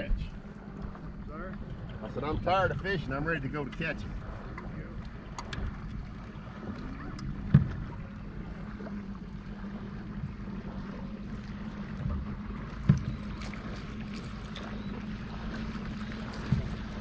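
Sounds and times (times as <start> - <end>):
electric boat motor humming: 0.0 - 17.0
sharp thumps on boat: 3.6 - 8.9, 11.5 - 17.0.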